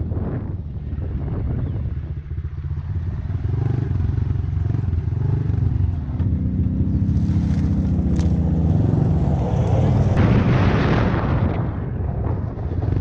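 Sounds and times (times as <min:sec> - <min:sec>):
dirt bike engine revving: 0:03.2 - 0:10.2.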